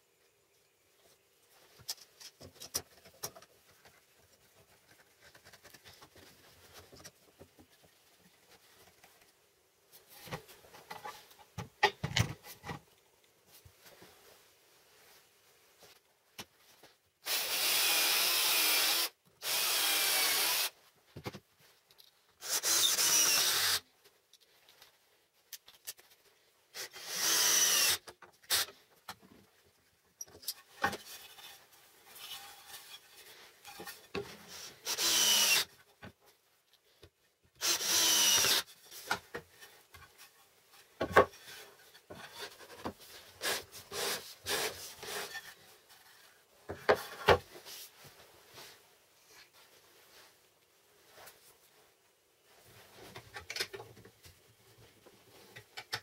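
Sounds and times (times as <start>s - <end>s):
cordless drill into wood: 17.2s - 20.8s, 22.4s - 23.8s, 26.8s - 28.7s, 34.8s - 35.7s, 37.6s - 38.7s.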